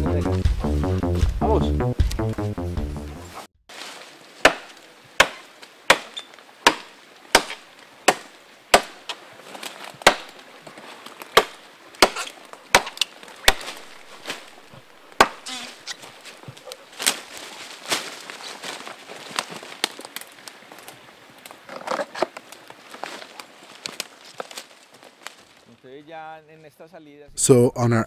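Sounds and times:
sharp woody knocks: 4.4s - 9.0s, 10.0s - 10.4s, 11.4s - 13.8s, 15.2s - 15.6s.

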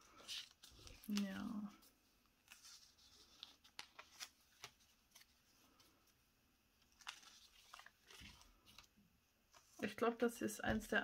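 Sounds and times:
paper pages rustling and clicking: 0.0s - 1.6s, 2.4s - 6.0s, 6.8s - 8.9s.

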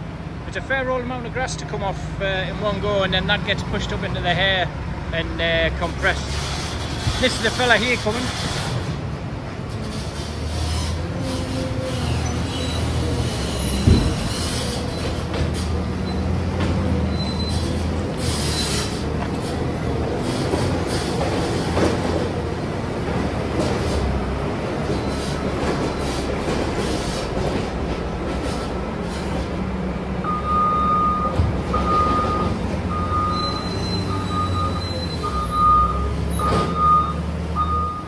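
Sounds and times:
wheel loader rumbling: 0.0s - 38.0s
reversing alarm beeping: 30.2s - 38.0s.

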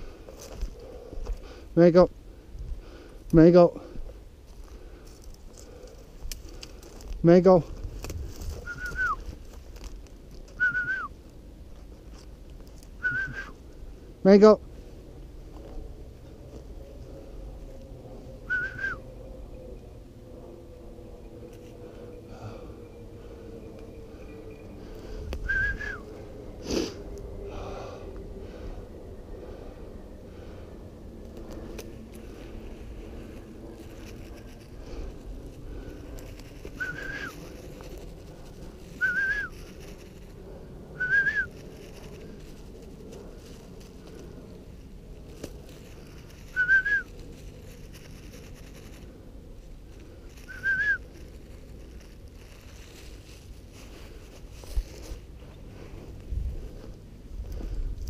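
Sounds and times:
warbling whistled call: 8.6s - 9.3s, 18.4s - 19.3s, 25.4s - 26.2s, 36.7s - 37.4s, 39.0s - 39.6s, 41.0s - 41.6s, 50.4s - 51.0s
sharp exhale: 26.6s - 28.8s.

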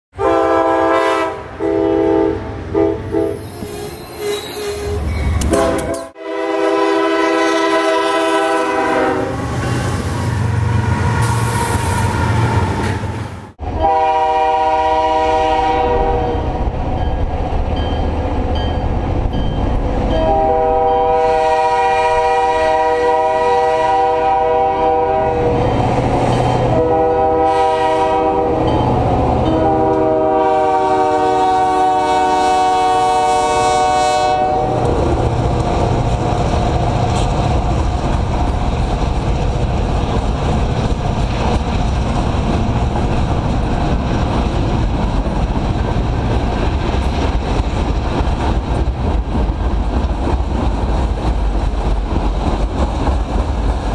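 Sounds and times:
train air horn blasts: 0.1s - 9.8s, 13.8s - 16.6s, 20.2s - 25.8s, 26.5s - 35.2s
approaching train rumble: 0.1s - 53.9s.

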